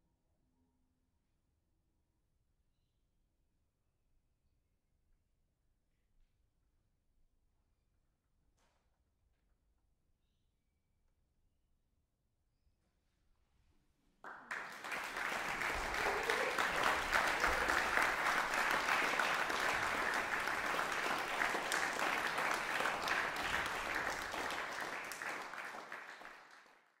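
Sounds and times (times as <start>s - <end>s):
audience applause: 14.3s - 26.9s.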